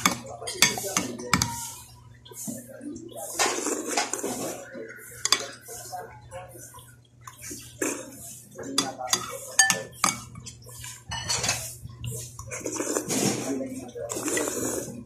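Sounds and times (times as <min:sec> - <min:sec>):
wet eating mouth noises: 0:01.5 - 0:09.4, 0:10.4 - 0:15.0
cutlery clinking on a plate: 0:08.8 - 0:10.4, 0:11.1 - 0:11.7.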